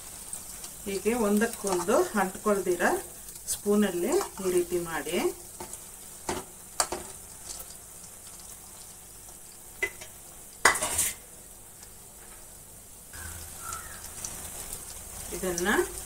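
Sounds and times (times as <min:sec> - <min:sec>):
food sizzling in hot oil: 0:00.0 - 0:16.0.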